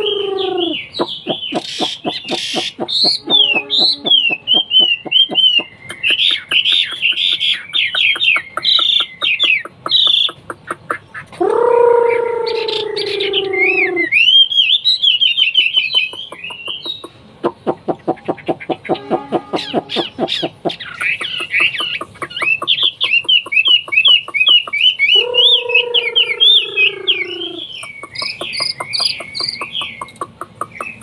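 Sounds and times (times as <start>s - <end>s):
bird singing whistled phrases: 0.0s - 8.0s, 12.4s - 17.1s
low falling bird call: 22.4s - 30.0s.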